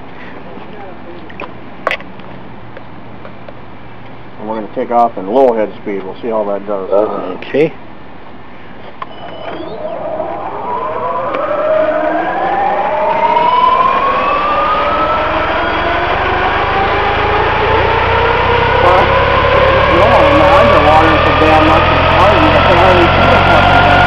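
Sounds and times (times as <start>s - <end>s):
helicopter motor and rotor whine: 9.0s - 24.0s.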